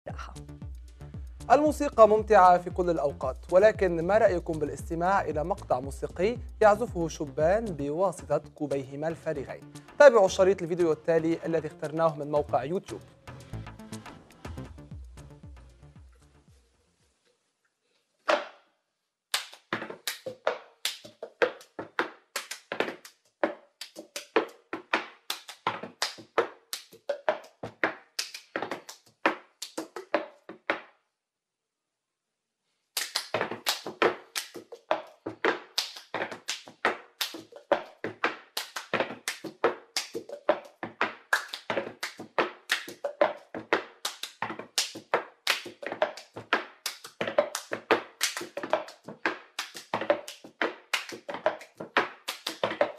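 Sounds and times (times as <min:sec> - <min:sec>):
plastic cups knocked on tabletop: 0:18.3 - 0:18.6, 0:19.6 - 0:30.9, 0:33.3 - 0:52.9.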